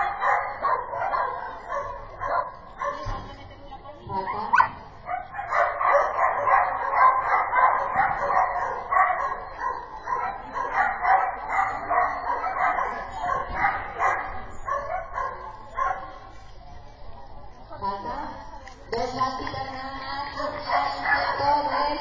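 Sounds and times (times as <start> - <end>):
dog barking rapidly: 0.0 - 3.1, 4.4 - 16.2.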